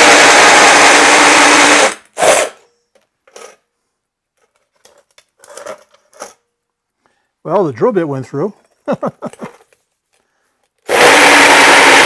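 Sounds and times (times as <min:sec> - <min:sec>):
drill grinding with hole saw: 0:00.0 - 0:02.6, 0:10.9 - 0:12.0
faint handling sounds: 0:02.7 - 0:07.4, 0:08.4 - 0:10.9.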